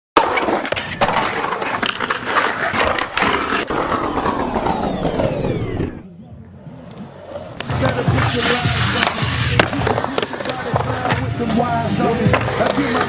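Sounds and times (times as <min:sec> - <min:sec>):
skateboard wheels rolling: 0:00.2 - 0:13.0
skateboard clacks: 0:07.6 - 0:13.0.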